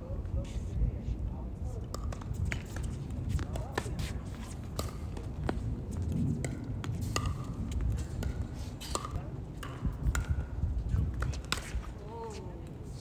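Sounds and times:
steady low rumble: 0.0 - 13.0
tennis ball struck by rackets: 1.9 - 5.6, 6.4 - 10.5, 11.1 - 11.9.

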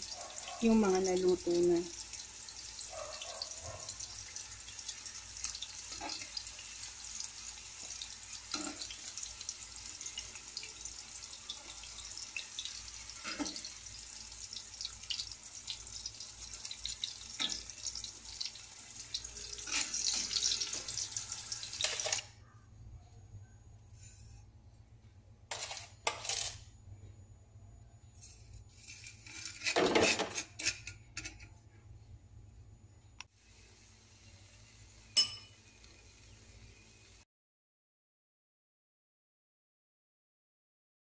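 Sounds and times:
food sizzling in hot oil: 0.0 - 22.2, 28.7 - 29.8, 33.4 - 37.2.

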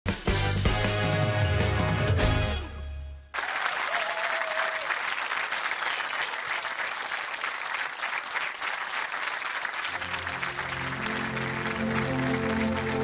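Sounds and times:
audience applauding: 3.3 - 13.0.

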